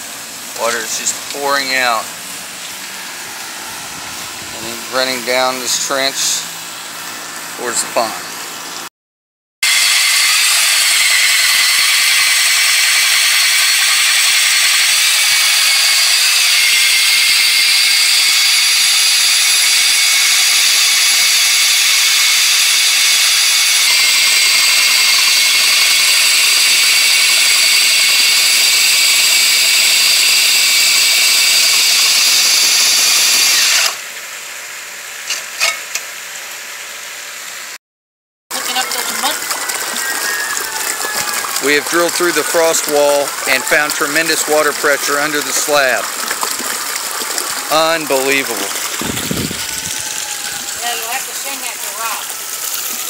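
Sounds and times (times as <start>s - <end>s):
core drill whining: 9.6s - 34.0s, 39.0s - 51.7s.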